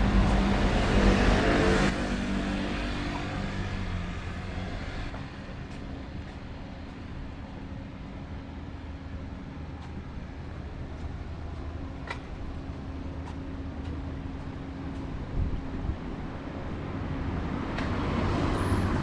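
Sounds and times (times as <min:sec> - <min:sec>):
vehicle engine passing by: 0:00.0 - 0:05.4
low hum of traffic: 0:00.0 - 0:19.0.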